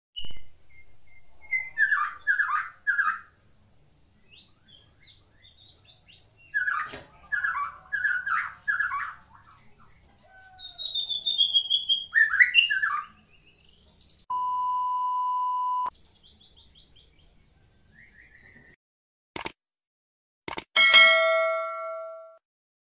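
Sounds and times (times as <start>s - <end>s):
bird singing whistles and chatters: 0.2s - 3.3s, 4.3s - 13.8s
steady beep: 14.3s - 15.9s.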